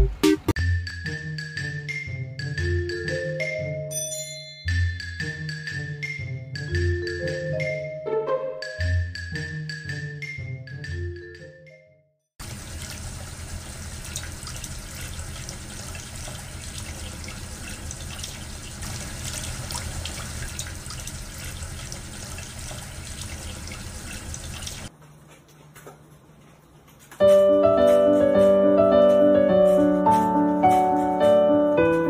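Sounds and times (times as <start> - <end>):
faint water drips: 12.4 - 24.9
water fountain trickling: 12.4 - 24.9.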